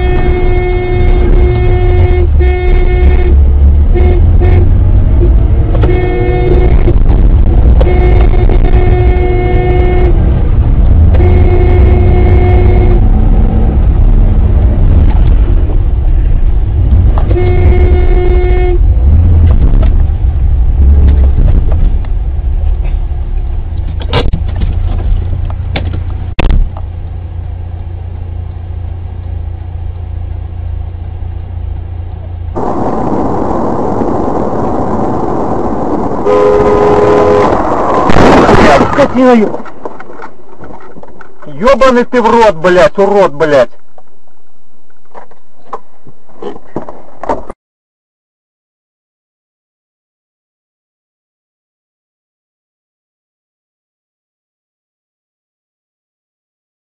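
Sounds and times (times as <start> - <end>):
car horn blasts: 0.0 - 4.8, 5.8 - 7.0, 7.7 - 10.3, 11.0 - 13.2, 17.3 - 18.9, 36.2 - 39.0
car engine rumble: 0.0 - 47.6
road noise: 0.0 - 47.6.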